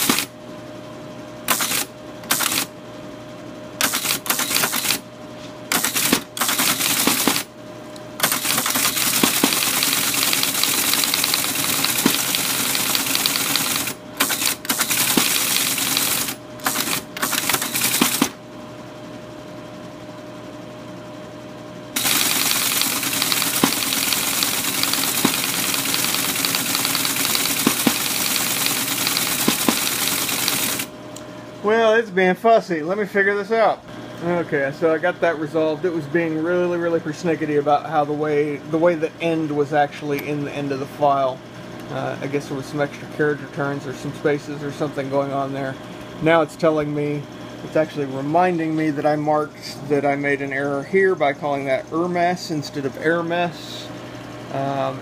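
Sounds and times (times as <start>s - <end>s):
teletype printer clattering: 0.0s - 0.3s, 1.5s - 2.7s, 3.8s - 5.0s, 5.7s - 7.5s, 8.2s - 18.4s, 22.0s - 30.9s
machine motor humming: 0.0s - 32.0s.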